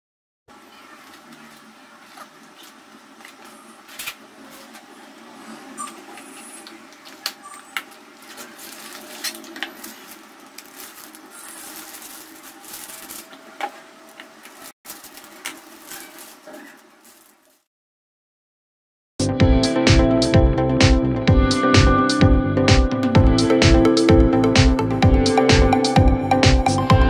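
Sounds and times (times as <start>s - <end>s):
cardboard and plastic handling: 8.2s - 17.5s.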